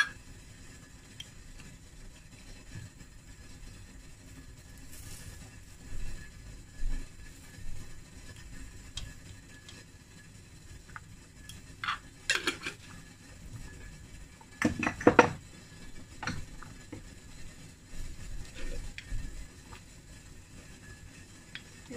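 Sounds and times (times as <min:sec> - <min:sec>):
metal utensils clinking on cookware: 0:11.8 - 0:12.9.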